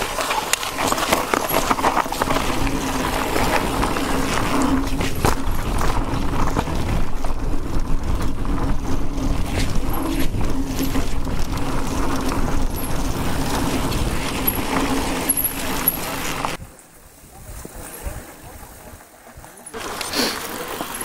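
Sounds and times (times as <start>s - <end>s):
bike rattling over rough ground: 0.0s - 21.0s
bike tyres rolling: 0.0s - 21.0s
wind on microphone: 1.3s - 19.5s.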